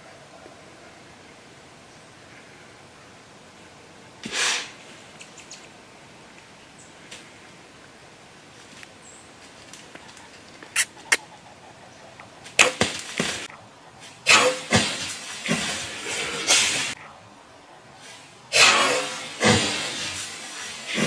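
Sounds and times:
arrow striking target: 0:12.6 - 0:13.5, 0:14.3 - 0:15.8, 0:18.5 - 0:20.2
loud rustling bursts: 0:18.1 - 0:21.0.

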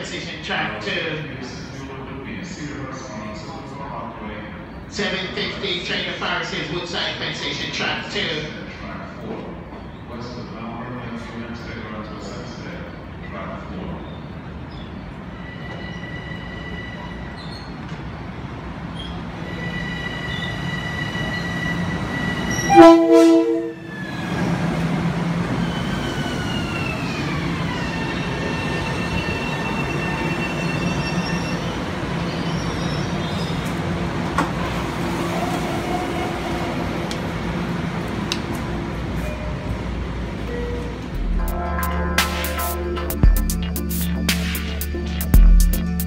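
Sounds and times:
rumble of train wheels: 0:00.0 - 0:41.9
train horn blast: 0:22.6 - 0:23.8.

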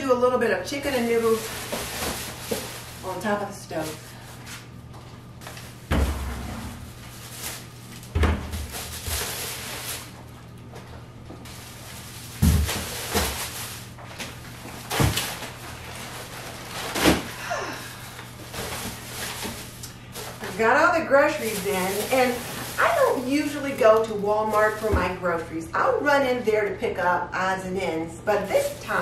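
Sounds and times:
rustling bags: 0:00.7 - 0:04.7, 0:06.7 - 0:10.4, 0:11.4 - 0:25.3, 0:28.3 - 0:29.0
bags set down: 0:11.4 - 0:17.4.

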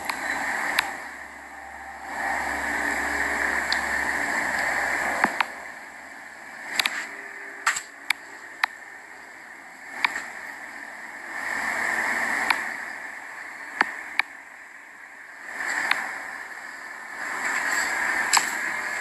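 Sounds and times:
low hum: 0:00.0 - 0:11.3.

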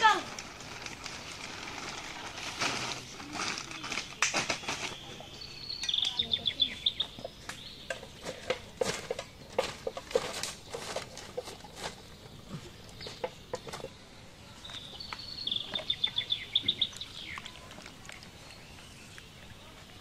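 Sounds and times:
plastic tarpaulin rustling: 0:00.0 - 0:05.5, 0:08.1 - 0:14.9.

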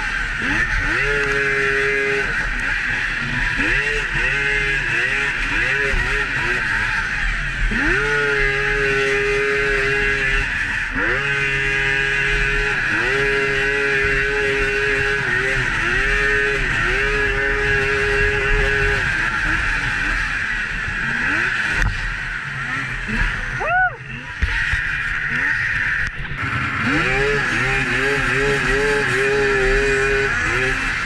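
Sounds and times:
snowmobile engine running hard: 0:00.0 - 0:31.0.

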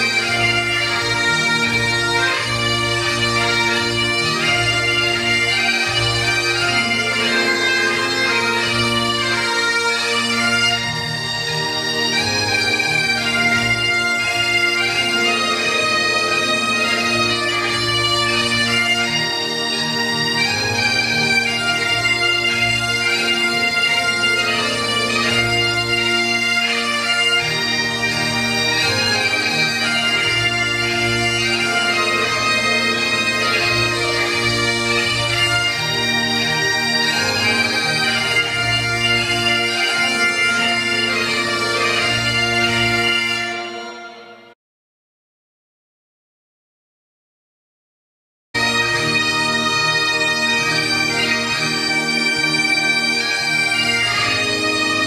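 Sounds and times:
bagpipe chanter melody: 0:00.0 - 0:44.6, 0:48.6 - 0:55.0
bagpipe drones humming: 0:00.0 - 0:44.6, 0:48.6 - 0:55.0.

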